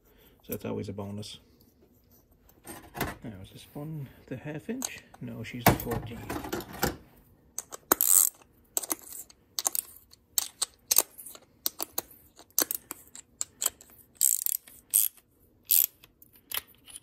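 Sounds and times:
metal parts clicking: 7.6 - 17.0.

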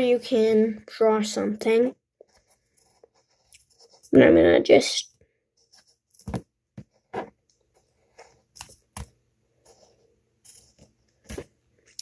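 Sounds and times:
pencil scratching on paper: 2.2 - 4.3.

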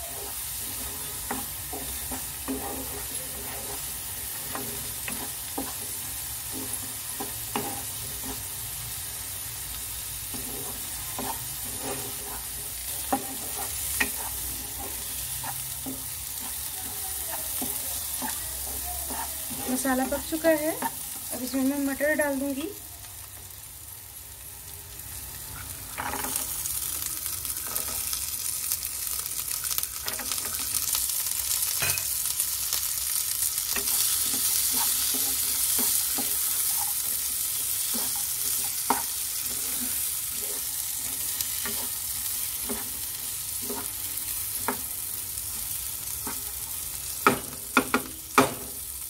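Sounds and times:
spatula scraping a pan: 0.0 - 21.8, 33.5 - 48.0
food sizzling in a frying pan: 0.0 - 49.0.

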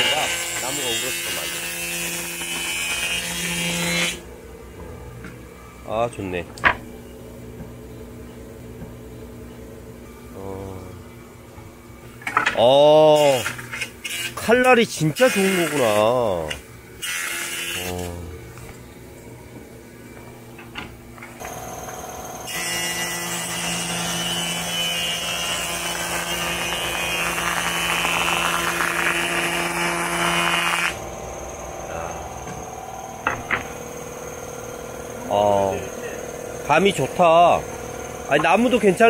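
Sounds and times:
board being planed: 0.0 - 4.2, 15.2 - 18.0, 21.5 - 31.0
jointer-planer motor running: 21.4 - 39.0.

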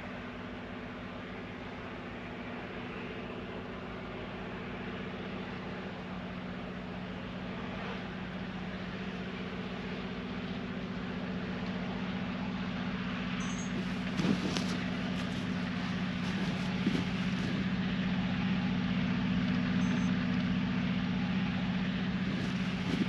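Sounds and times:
diesel engines droning: 0.0 - 23.0
rushing noise of blown snow: 13.7 - 18.6, 21.6 - 23.0.

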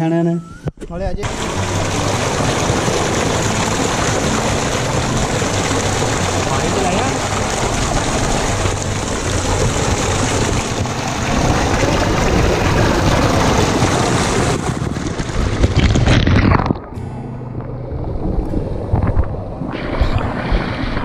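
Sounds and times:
water gushing into a tank: 1.2 - 17.0.

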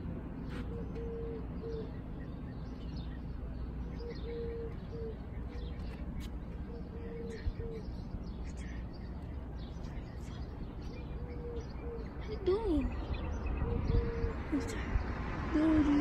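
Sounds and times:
steady low rumble: 0.0 - 16.0
small birds chirping: 0.4 - 16.0
doves cooing: 0.5 - 2.1, 3.8 - 8.9, 10.4 - 16.0.

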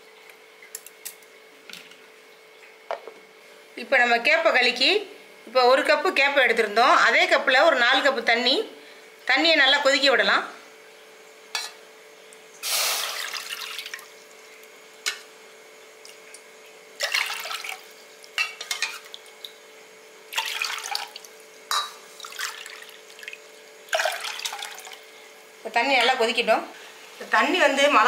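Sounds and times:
water splashing into metal pan: 12.6 - 14.1, 17.0 - 17.9, 20.3 - 21.3, 22.2 - 25.0.

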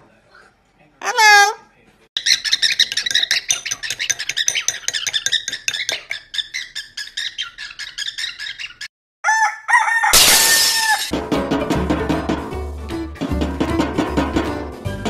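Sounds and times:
cockatiel chirping: 2.2 - 8.9.

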